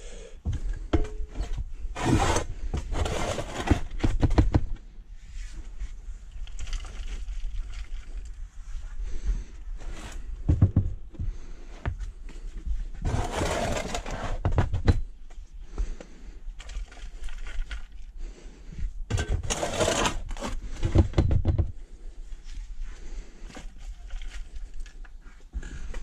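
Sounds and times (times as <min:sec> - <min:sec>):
shovel scraping through soil: 0:01.9 - 0:04.0, 0:13.0 - 0:14.4, 0:19.4 - 0:20.7.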